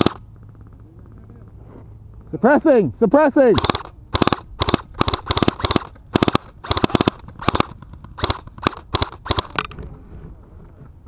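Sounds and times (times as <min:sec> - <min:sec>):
airsoft rifle firing bursts: 0:00.0 - 0:00.6, 0:03.4 - 0:09.6.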